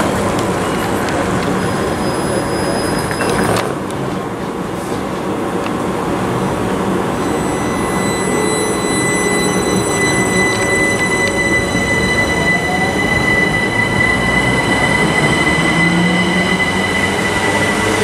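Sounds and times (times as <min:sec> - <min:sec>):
electric traction whine: 0:07.2 - 0:18.0
electric train running: 0:07.2 - 0:18.0.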